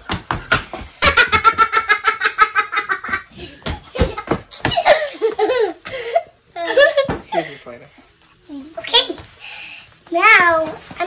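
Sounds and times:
child laughing: 3.9s - 5.8s.

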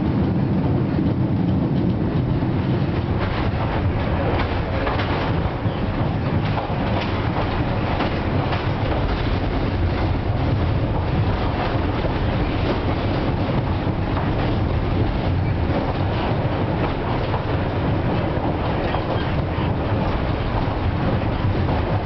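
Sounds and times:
tram wheels rumbling on rails: 0.0s - 22.0s.

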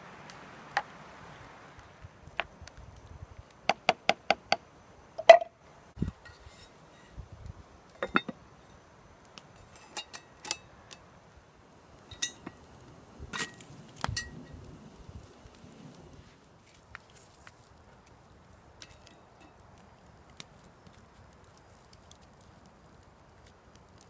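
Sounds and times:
iron lid set on pot: 8.0s - 8.4s
wire handle clinking: 9.6s - 10.7s, 12.1s - 12.6s.

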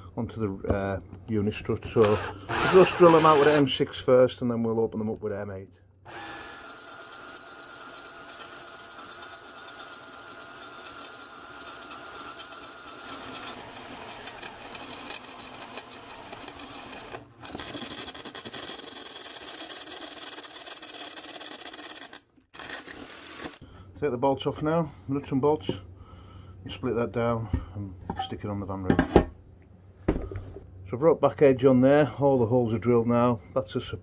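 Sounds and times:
power drill boring into metal: 2.0s - 3.6s, 6.1s - 23.6s.

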